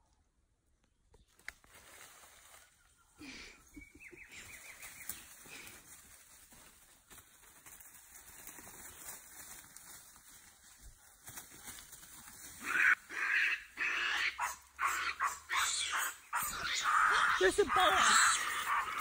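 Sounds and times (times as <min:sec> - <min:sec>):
monkeys calling: 0:12.6 - 0:19.0.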